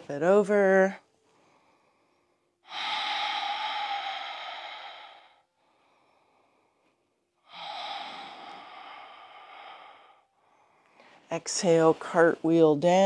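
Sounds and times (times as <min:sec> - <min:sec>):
woman breathing slowly: 0:01.1 - 0:11.3.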